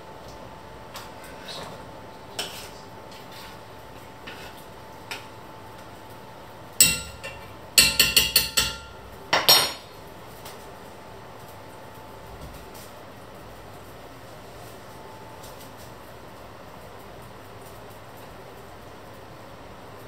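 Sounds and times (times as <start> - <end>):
metal spoon knocking on pot: 6.8 - 9.8.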